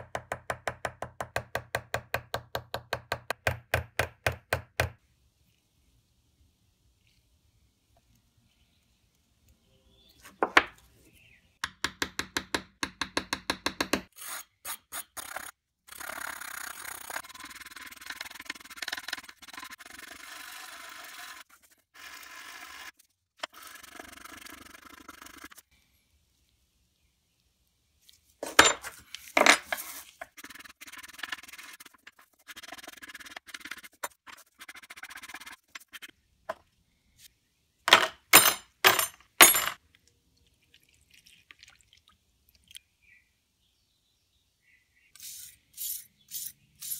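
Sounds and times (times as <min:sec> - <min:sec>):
brush scrubbing rust off metal: 0:29.7 - 0:36.1.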